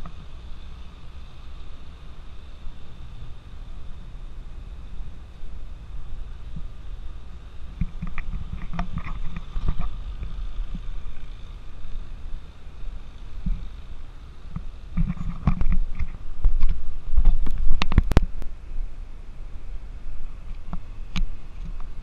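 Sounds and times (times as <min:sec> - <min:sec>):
thumps and clicks: 0:14.5 - 0:18.5.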